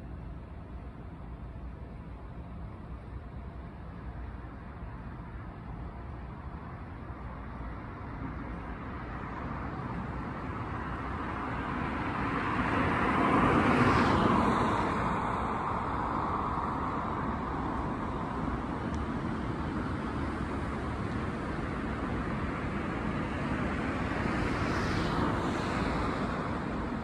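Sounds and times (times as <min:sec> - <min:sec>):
car passing by: 0:08.5 - 0:27.0.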